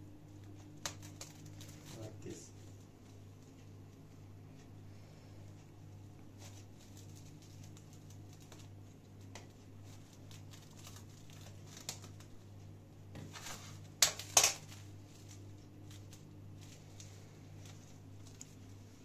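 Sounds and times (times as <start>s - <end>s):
steady low hum: 0.0s - 19.0s
plastic cling film crinkling: 0.3s - 3.6s, 6.0s - 12.6s, 13.2s - 19.0s.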